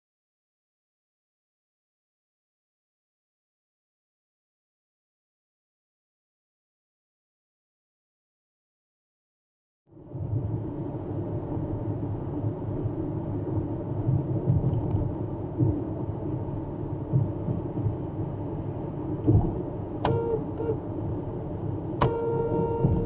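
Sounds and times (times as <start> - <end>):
car road and engine rumble: 9.9 - 23.0
short sharp beep: 22.0 - 23.0.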